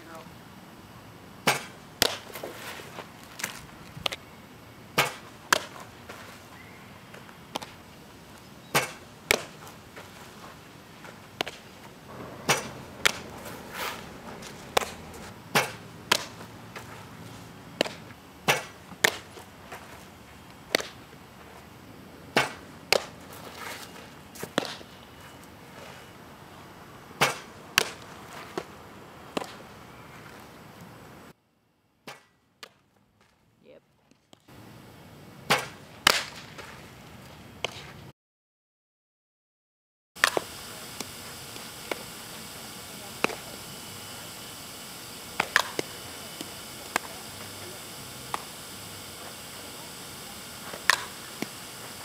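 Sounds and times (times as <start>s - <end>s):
softballs smacking into leather mitt: 1.5s - 2.4s.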